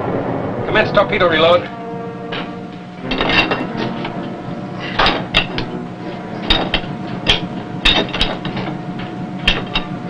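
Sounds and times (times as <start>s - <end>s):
machinery hum: 0.0s - 10.0s
tools knocking on metal gear: 6.4s - 10.0s.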